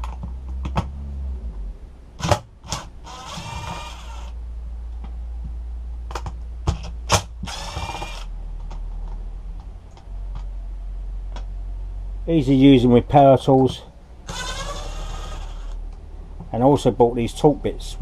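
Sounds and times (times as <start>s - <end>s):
bit and screws clicking: 2.2s - 4.4s, 6.1s - 9.2s, 13.6s - 15.8s
impact driver running: 2.2s - 4.4s, 7.1s - 8.3s, 14.3s - 15.8s.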